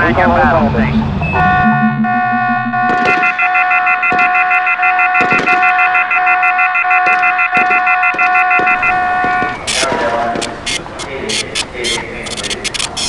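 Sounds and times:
electronic alarm tone: 0.0s - 9.6s
fast pulsing beep: 0.0s - 9.6s
sharp clicks: 9.7s - 13.0s.

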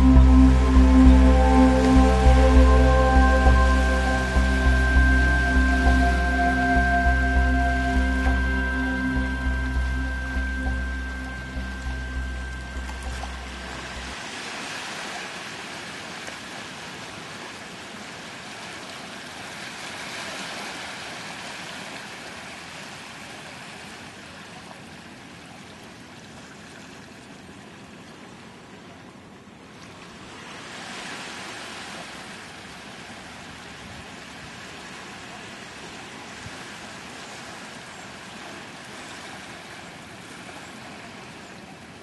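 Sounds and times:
small waves on sandy beach: 14.2s - 42.0s.

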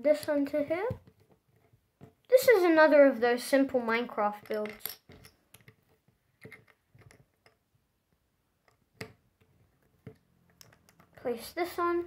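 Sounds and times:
plastic bricks clicking: 4.3s - 5.8s, 8.6s - 11.2s.

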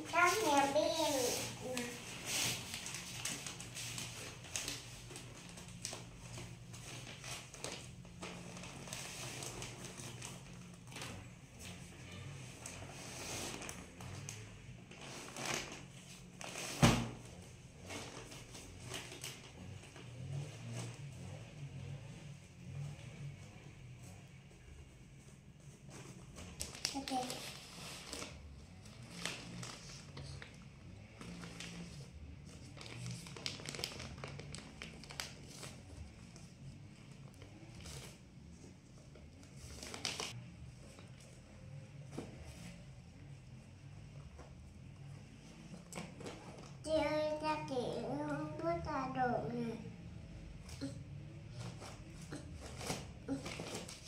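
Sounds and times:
plastic wrapping rustling: 0.0s - 21.9s, 25.6s - 42.8s, 51.6s - 54.0s.

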